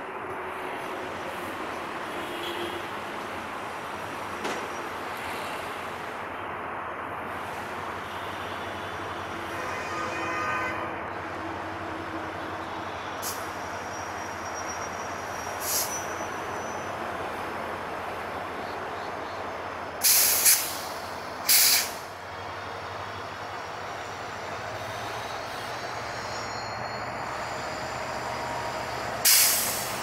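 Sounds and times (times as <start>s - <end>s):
diesel locomotive idling: 11.1s - 30.0s
air brake hissing: 13.2s - 13.5s, 15.5s - 16.2s, 20.0s - 22.1s, 28.6s - 30.0s.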